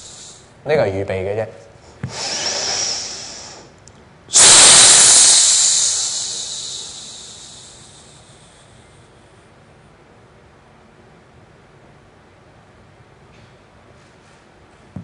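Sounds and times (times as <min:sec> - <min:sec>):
person breathing out forcefully: 0:02.0 - 0:03.7, 0:04.3 - 0:08.8.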